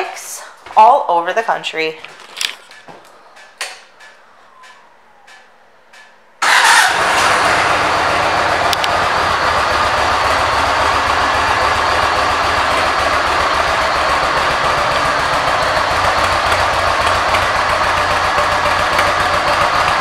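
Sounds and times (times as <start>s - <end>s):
motorcycle engine starting and idling: 6.4s - 20.0s.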